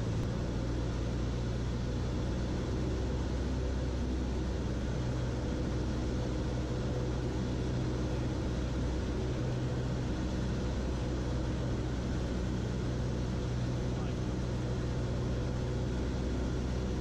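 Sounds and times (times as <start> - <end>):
airplane engine and propeller drone: 0.0 - 17.0.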